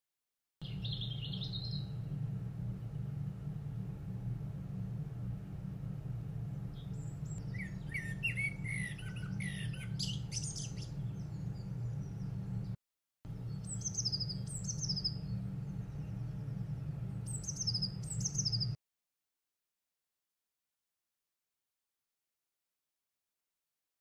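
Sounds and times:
small bird trilling: 0.6 - 1.9, 6.7 - 11.4, 13.6 - 15.2, 17.2 - 18.8
steady low hum: 0.6 - 18.8
robin warbling: 7.4 - 10.9.

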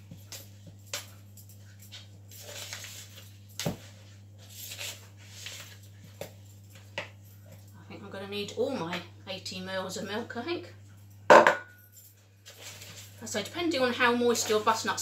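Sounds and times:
spatula knocking against bowl: 11.3 - 11.7.

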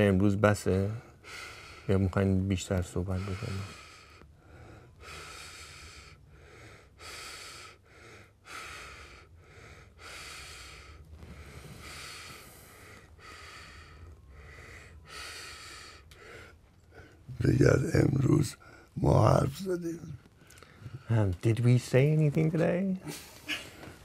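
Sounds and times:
person breathing: 1.0 - 2.0, 3.0 - 17.3, 20.4 - 21.1.

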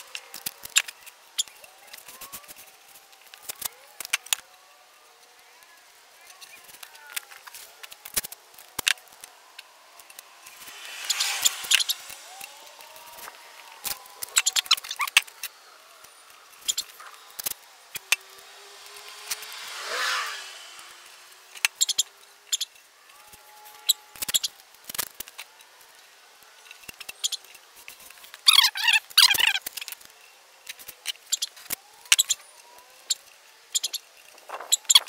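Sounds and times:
vehicle passing: 0.0 - 24.7
masking tape crackling: 0.0 - 35.0.

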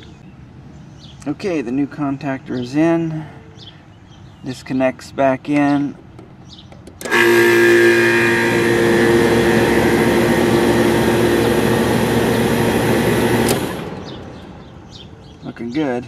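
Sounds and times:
contactor click: 6.7 - 15.4
condenser unit humming and whirring: 7.0 - 15.0.

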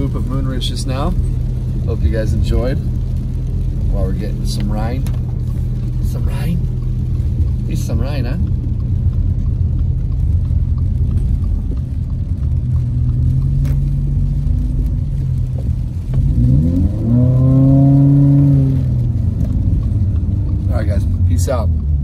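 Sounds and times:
car engine revving: 0.0 - 22.0
road rumble: 0.0 - 22.0.

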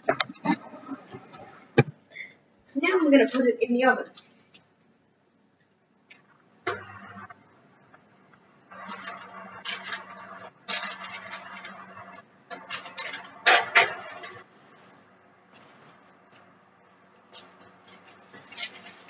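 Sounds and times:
baking tray scraping on oven rack: 8.8 - 14.5.

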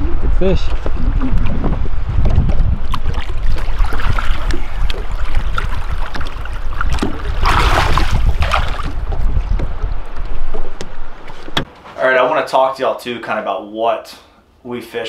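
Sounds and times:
rushing water: 0.0 - 11.2
wind buffeting microphone: 0.0 - 11.7.

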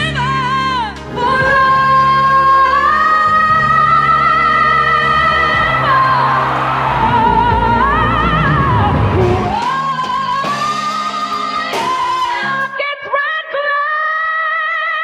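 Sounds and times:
band playing: 0.0 - 12.8.

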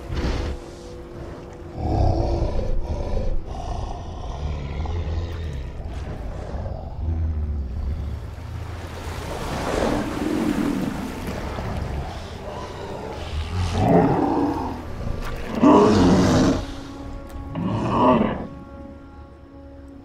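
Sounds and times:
river water washing: 0.0 - 3.2, 5.0 - 20.0
gorilla growling low: 1.8 - 7.8.

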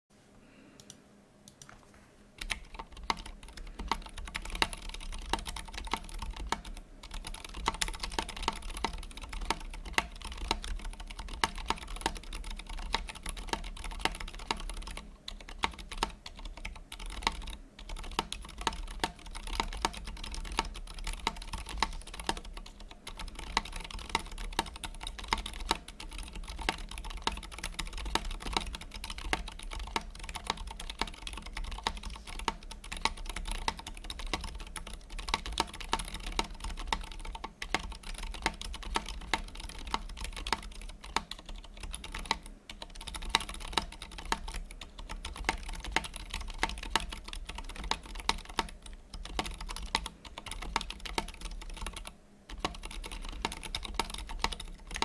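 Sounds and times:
mechanical keyboard typing: 2.4 - 55.0.

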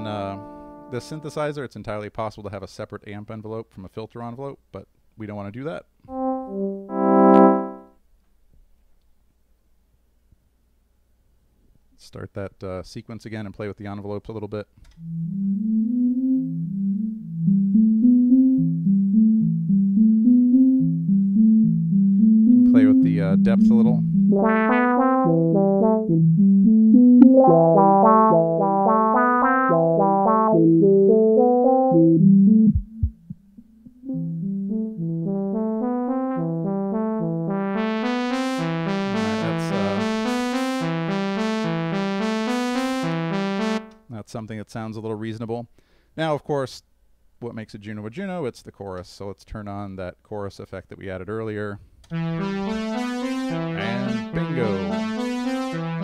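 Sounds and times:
synthesizer sequence: 6.1 - 7.9, 24.0 - 44.0, 52.1 - 56.0.

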